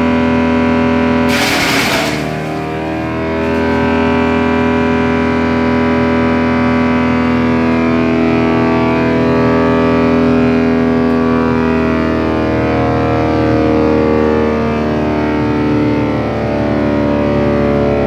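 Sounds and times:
wood chipper whining: 0.0 - 7.5.

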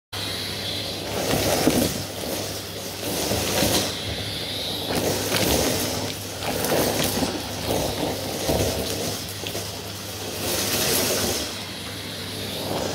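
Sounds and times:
vacuum cleaner motor hum: 0.2 - 12.9
vacuum head pushed over rug: 0.9 - 9.7, 10.3 - 11.7.

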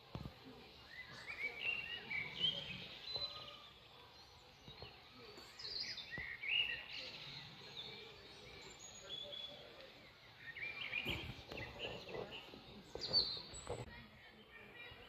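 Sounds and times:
faint outdoor background: 0.0 - 15.0
songbirds chirping: 0.0 - 15.0.

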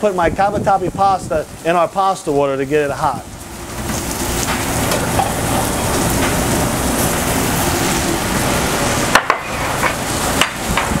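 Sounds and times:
vegetables sizzling in oil: 3.2 - 11.0.

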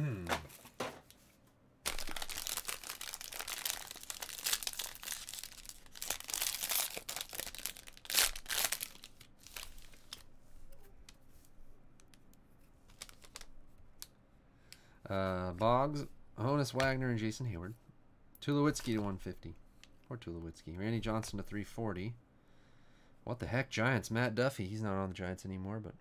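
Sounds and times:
cards rustling and clicking: 1.9 - 10.3, 11.4 - 13.5
foil wrapper crinkling: 1.9 - 10.3, 12.9 - 14.1.

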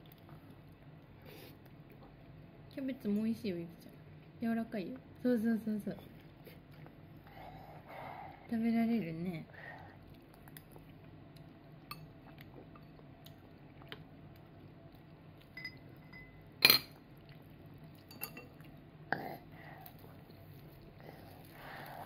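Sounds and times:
metal spoon clinking in ceramic cup: 15.6 - 16.9, 18.1 - 18.5.

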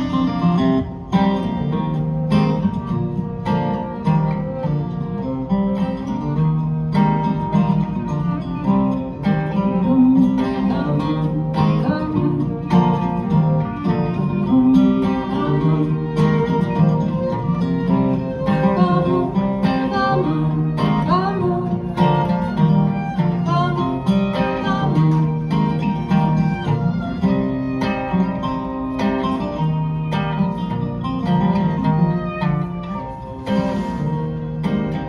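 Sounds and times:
acoustic guitars strumming: 0.0 - 35.0
fiddle playing: 0.0 - 35.0.

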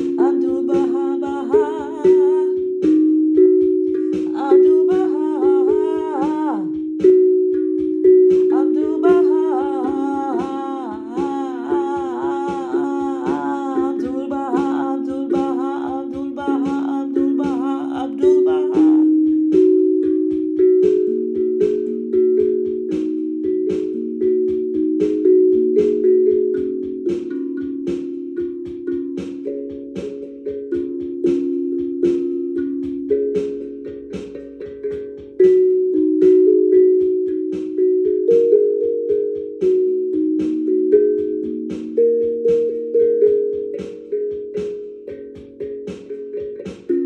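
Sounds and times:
steel tongue drum notes: 0.0 - 47.0.

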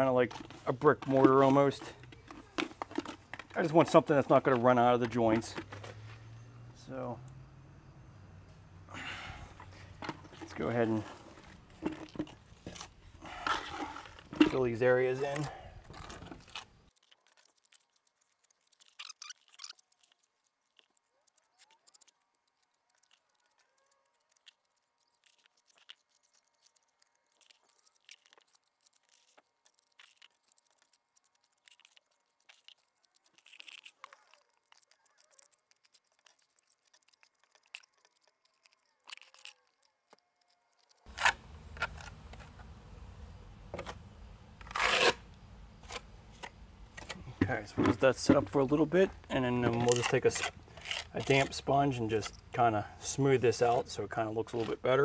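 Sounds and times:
trowel scraping and clicking: 44.6 - 45.2, 49.6 - 52.5.

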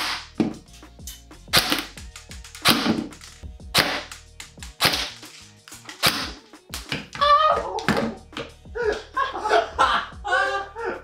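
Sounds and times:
airsoft rifle shots: 3.8 - 4.1.

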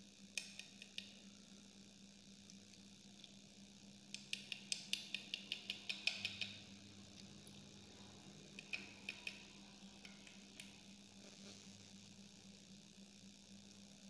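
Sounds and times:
light sharp clicks: 4.1 - 6.6, 8.5 - 10.8.

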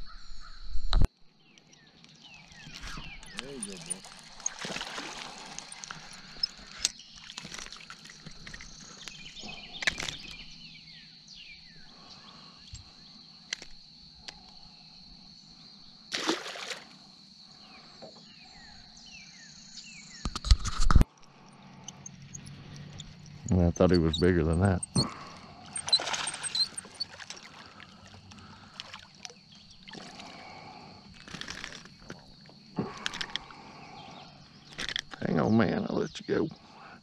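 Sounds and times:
high-pitched insect drone: 2.6 - 20.4, 21.1 - 37.0
quick falling chirps: 21.9 - 27.7.

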